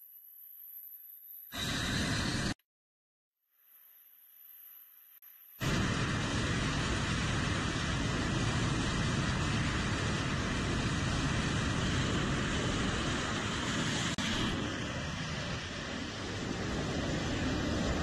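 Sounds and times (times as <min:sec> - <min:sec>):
loud jet engine roar: 0:01.5 - 0:02.6, 0:05.6 - 0:18.0.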